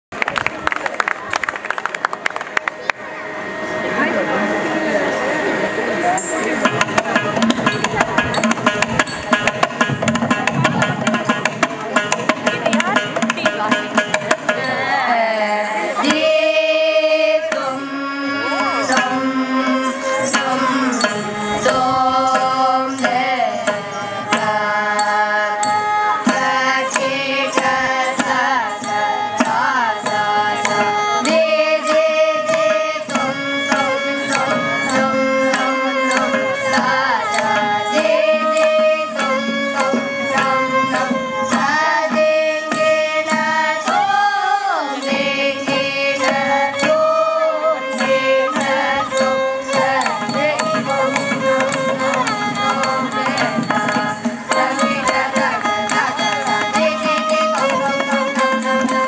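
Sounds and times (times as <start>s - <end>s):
hand drum playing: 0.2s - 59.0s
person singing: 13.6s - 59.0s.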